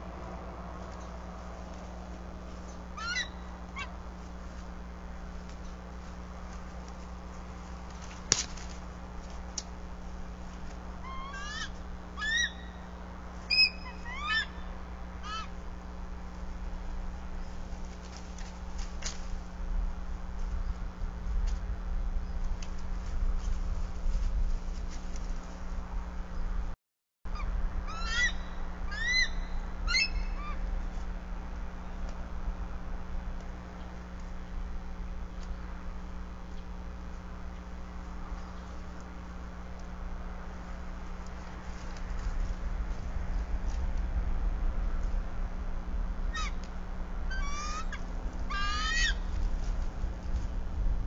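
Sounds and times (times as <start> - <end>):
low steady rumble: 0.0 - 51.0
eagles chittering: 2.6 - 4.1, 10.9 - 15.7, 27.4 - 30.8, 46.3 - 46.7, 47.3 - 49.4.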